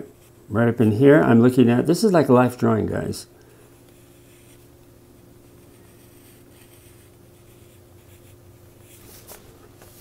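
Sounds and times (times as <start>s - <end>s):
steady low hum: 0.0s - 10.0s
pencil scratching on paper: 3.9s - 4.7s, 5.6s - 9.1s.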